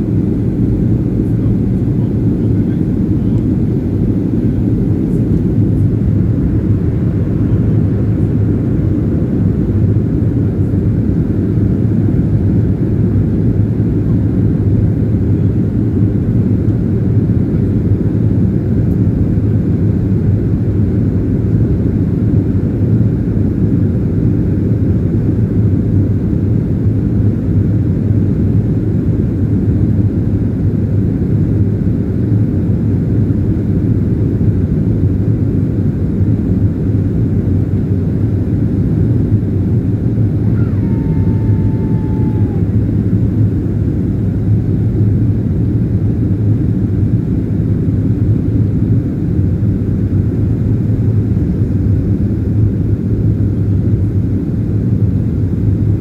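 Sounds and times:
airplane cabin rumble: 0.0s - 56.0s.

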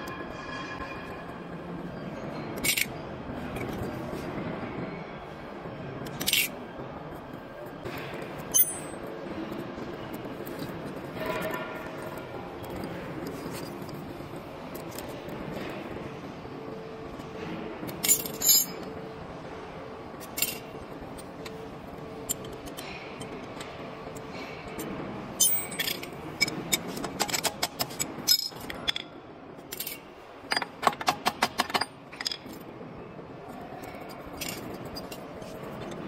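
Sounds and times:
metal tools clinking: 8.5s - 9.0s, 17.9s - 18.9s, 22.2s - 29.1s.

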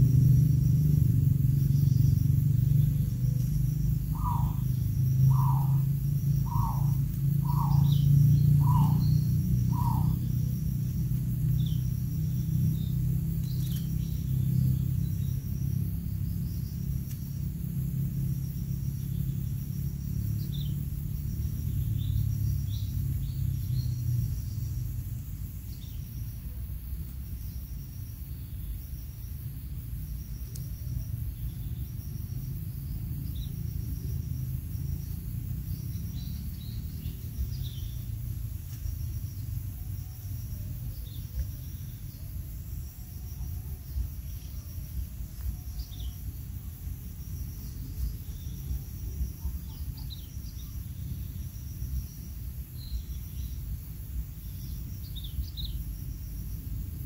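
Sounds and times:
low rumble: 0.0s - 52.2s
high bird chirps: 4.0s - 10.4s.

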